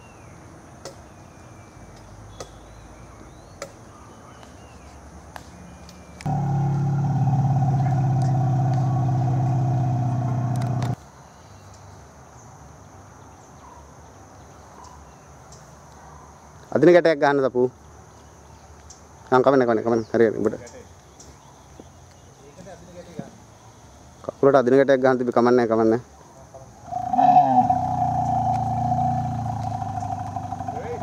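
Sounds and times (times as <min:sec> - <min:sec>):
motor vehicle drone: 0:06.3 - 0:11.0, 0:26.9 - 0:31.0.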